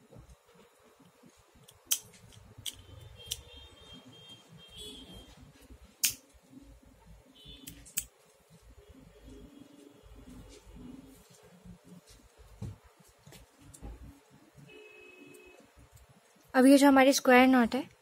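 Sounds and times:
sharp clicks of small tools: 1.6s - 3.5s, 6.0s - 6.2s, 7.6s - 8.1s.

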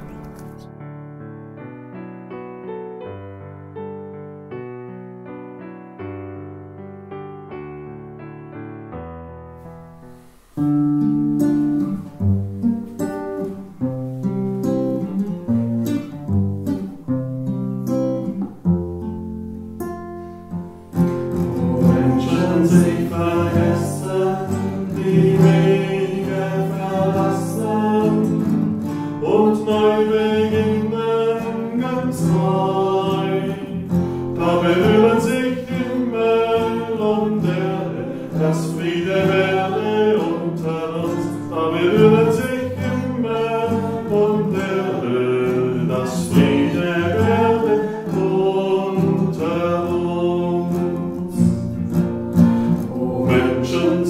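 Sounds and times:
acoustic guitar plucking: 0.0s - 54.0s
voices singing a hymn: 21.2s - 54.0s.

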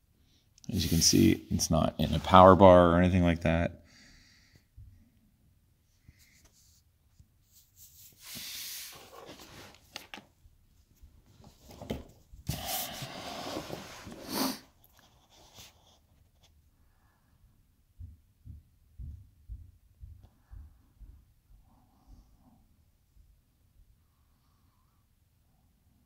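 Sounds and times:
rubbing and scraping handling noise: 0.7s - 3.4s, 5.9s - 16.7s.

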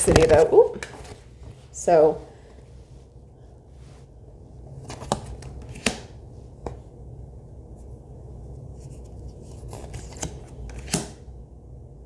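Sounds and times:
low room hum: 0.0s - 12.0s
cards rubbing and sliding: 4.8s - 6.1s, 8.7s - 11.1s
card snap: 4.9s - 6.1s, 10.0s - 11.2s.

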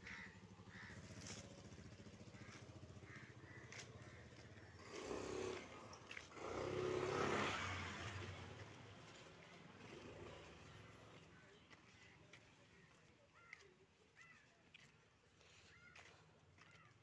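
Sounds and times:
motorcycle engine running: 0.4s - 7.0s.

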